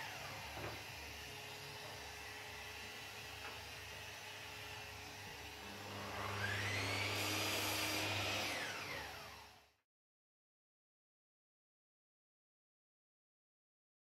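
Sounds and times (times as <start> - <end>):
electric motor whining: 5.1 - 9.6.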